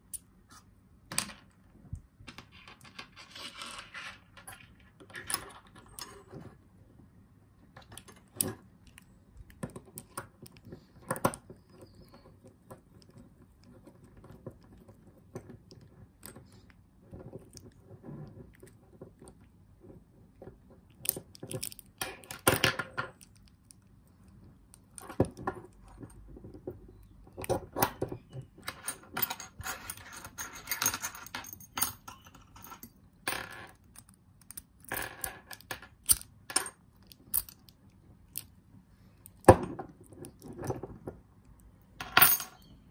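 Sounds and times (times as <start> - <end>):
metal padlock clicks and rattles: 20.9 - 23.8, 33.7 - 36.3, 37.0 - 38.5.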